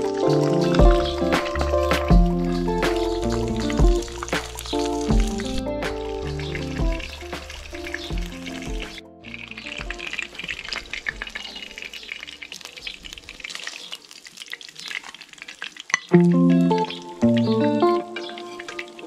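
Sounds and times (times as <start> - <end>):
loud background music: 0.0 - 9.0
egg and meat sizzling in a pan: 0.0 - 19.0.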